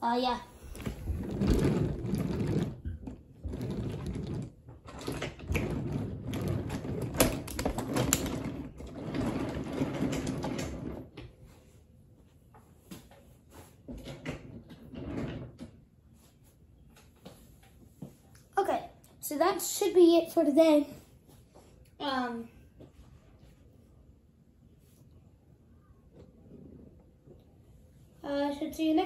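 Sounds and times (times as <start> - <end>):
toy train rolling on wooden track: 0.7 - 11.0.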